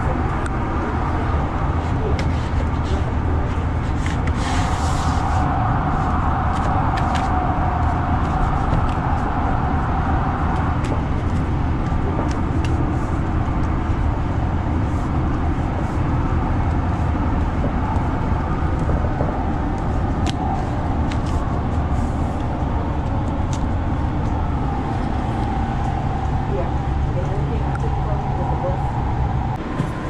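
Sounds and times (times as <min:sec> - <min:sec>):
train running: 0:00.0 - 0:30.0.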